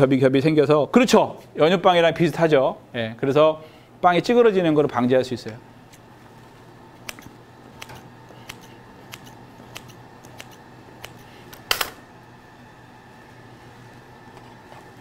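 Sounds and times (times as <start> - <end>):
scissors snipping dough: 7.0 - 11.7.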